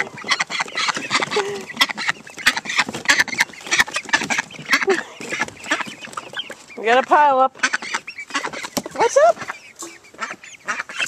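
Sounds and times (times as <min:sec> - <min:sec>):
ducks quacking: 0:00.0 - 0:11.0
poultry calling: 0:00.0 - 0:11.0.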